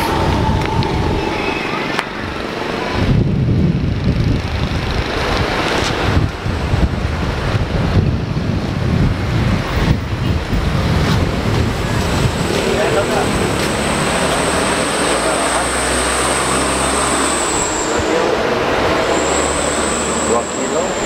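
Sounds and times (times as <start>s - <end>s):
wind buffeting microphone: 0.0s - 14.0s
road traffic passing: 0.0s - 21.0s.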